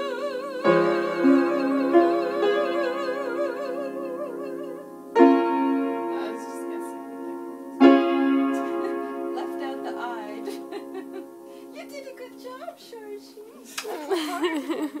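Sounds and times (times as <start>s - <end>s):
person singing with vibrato: 0.0s - 6.4s
piano chords: 0.0s - 12.8s.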